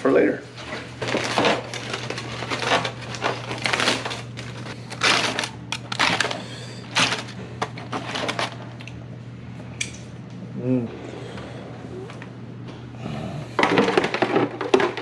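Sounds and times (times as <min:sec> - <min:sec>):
aluminium foil crinkling: 0:00.5 - 0:08.9.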